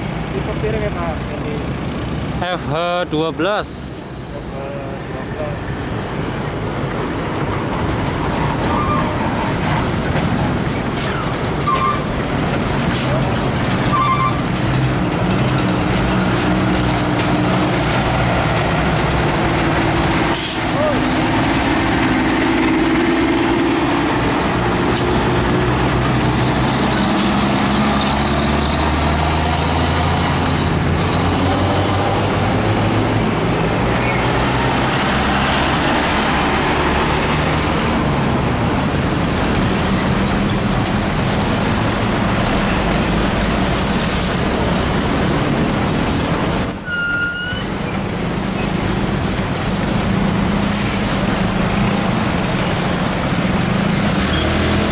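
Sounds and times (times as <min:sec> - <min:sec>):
truck engine hum: 0:00.0 - 0:54.9
trucks passing: 0:00.0 - 0:54.9.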